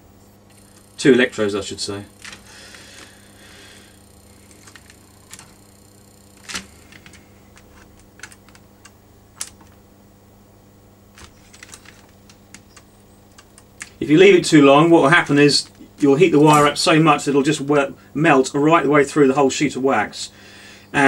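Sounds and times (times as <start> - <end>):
faint steady hum: 0.0 - 21.0
wire embedder clicks: 4.5 - 5.6, 6.3 - 9.8, 11.2 - 14.1.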